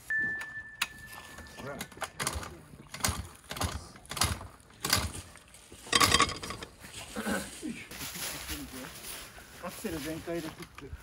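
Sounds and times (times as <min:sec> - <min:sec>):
metal clanks and knocks: 0:05.9 - 0:06.7.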